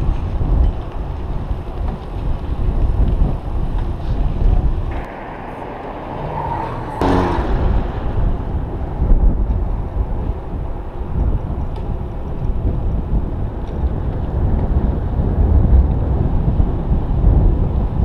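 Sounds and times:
wind buffeting microphone: 0:00.0 - 0:18.0
short sharp sound: 0:04.9 - 0:09.4.

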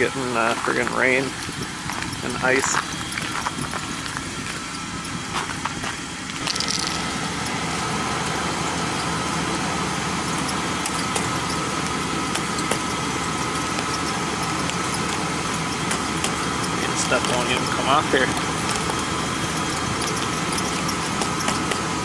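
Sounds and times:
truck engine idling: 0:00.0 - 0:22.0
sharp ticks: 0:10.3 - 0:22.0.

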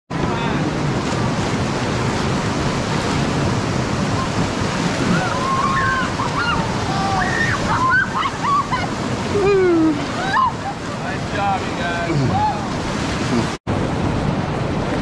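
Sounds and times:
whitewater rushing roar: 0:00.1 - 0:15.0
people shouting: 0:05.0 - 0:10.8.

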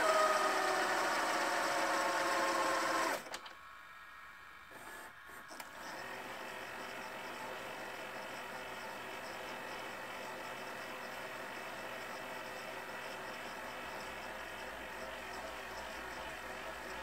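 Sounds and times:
tape deck reel drive whirring: 0:00.0 - 0:17.0.

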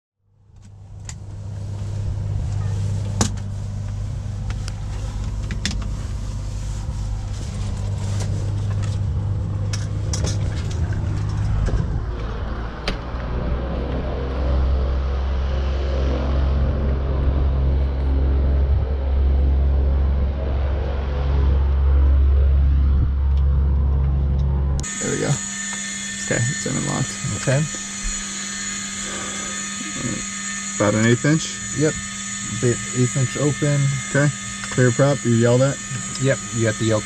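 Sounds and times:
engine running low: 0:00.3 - 0:37.0.

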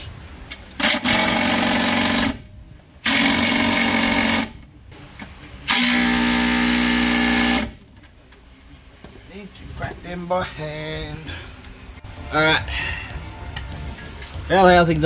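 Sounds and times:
impact wrench whine: 0:00.8 - 0:04.6, 0:05.7 - 0:07.8.

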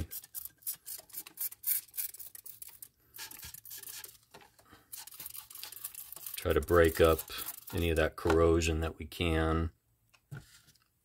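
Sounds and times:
spray bottle spritzing: 0:00.0 - 0:04.2, 0:04.9 - 0:08.0.

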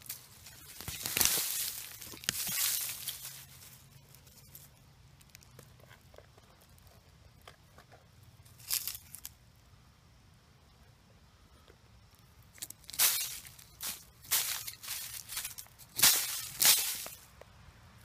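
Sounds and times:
dry leaves crunching and rustling: 0:00.0 - 0:05.5, 0:08.5 - 0:09.3, 0:12.6 - 0:17.3.

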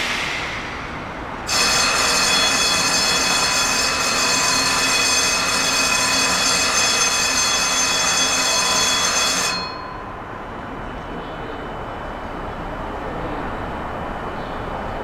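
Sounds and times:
rush of noise: 0:00.0 - 0:02.1
moving train rumbling: 0:00.0 - 0:05.4.

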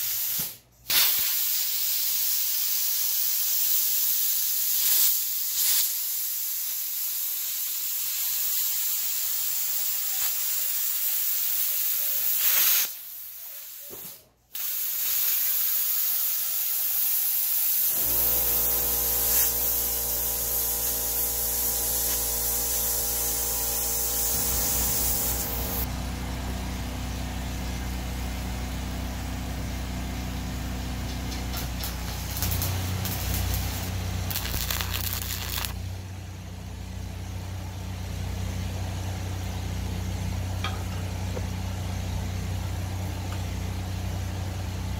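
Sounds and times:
welding arc hissing and crackling: 0:00.0 - 0:25.9, 0:30.6 - 0:35.8.

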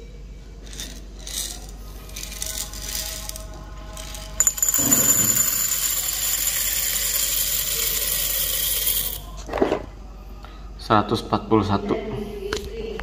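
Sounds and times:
coffee beans pouring into glass jar: 0:00.7 - 0:09.3.

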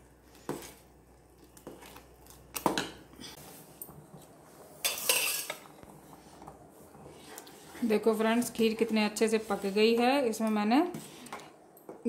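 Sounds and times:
spoon clinking and scraping pot: 0:04.8 - 0:05.7.

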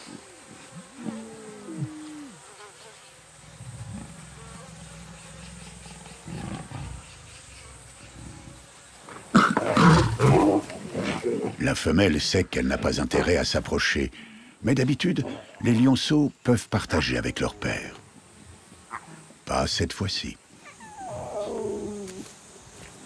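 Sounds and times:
lions whining calls: 0:00.0 - 0:02.4, 0:03.5 - 0:08.6, 0:20.6 - 0:22.3
lion growling: 0:03.4 - 0:08.7, 0:09.3 - 0:11.7, 0:20.8 - 0:22.2.

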